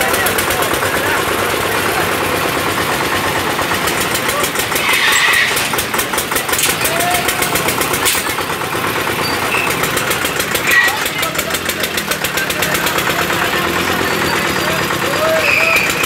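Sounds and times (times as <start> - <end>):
engine running steadily: 0.0 - 16.0
indistinct crowd voices: 0.0 - 16.0.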